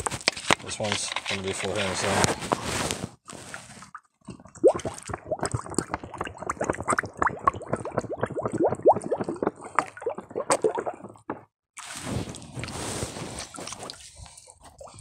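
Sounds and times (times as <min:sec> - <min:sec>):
bottle filling with water gurgling: 0:04.3 - 0:14.0.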